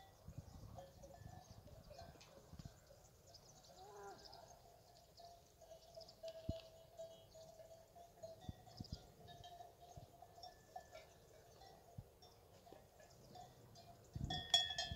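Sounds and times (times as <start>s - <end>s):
faint bird chirps: 0.0s - 7.8s.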